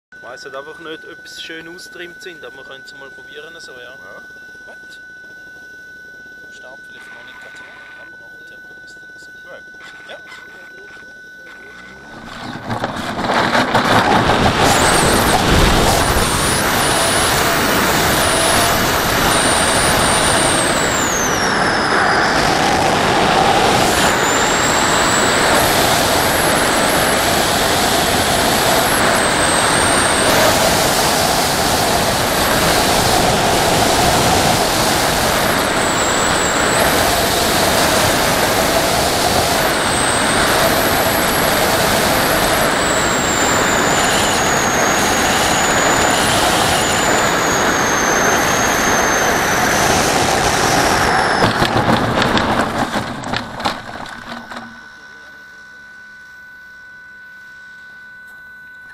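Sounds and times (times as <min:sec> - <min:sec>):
faint steady hum: 0:00.1 - 0:13.1, 0:53.8 - 0:58.9
thin high whine: 0:00.1 - 0:58.9
airflow buffeting camera: 0:11.5 - 0:54.7.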